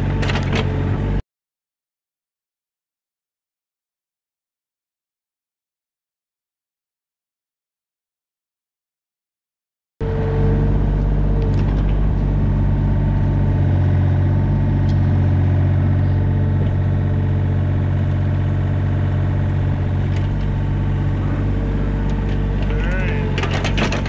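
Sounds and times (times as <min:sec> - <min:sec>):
excavator diesel engine running: 0:00.0 - 0:01.2, 0:10.0 - 0:24.0
higher whine: 0:10.0 - 0:24.0.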